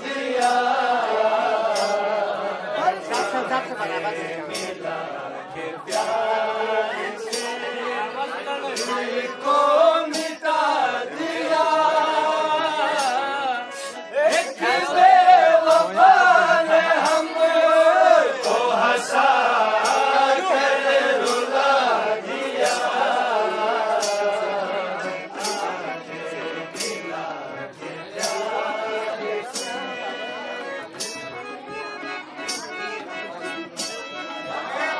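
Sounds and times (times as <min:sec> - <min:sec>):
men singing: 0:00.0 - 0:30.4
sharp percussive strikes: 0:00.1 - 0:03.7, 0:04.5 - 0:05.0, 0:05.9 - 0:07.8, 0:08.7 - 0:12.1, 0:12.8 - 0:27.3, 0:28.0 - 0:28.7, 0:29.4 - 0:29.9, 0:30.8 - 0:31.4, 0:32.4 - 0:33.0, 0:33.6 - 0:34.2.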